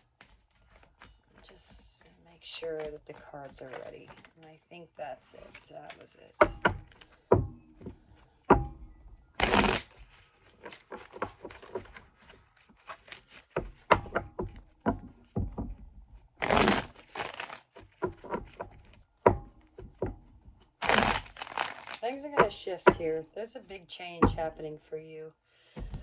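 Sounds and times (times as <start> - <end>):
cards being shuffled: 0.0 - 8.3, 9.4 - 15.8, 16.4 - 19.0, 20.7 - 23.0.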